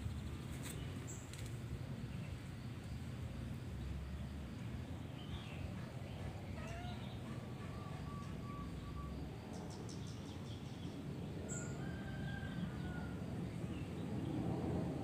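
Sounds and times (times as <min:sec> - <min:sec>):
low background rumble: 0:00.0 - 0:15.0
faint bird calls: 0:05.3 - 0:10.2.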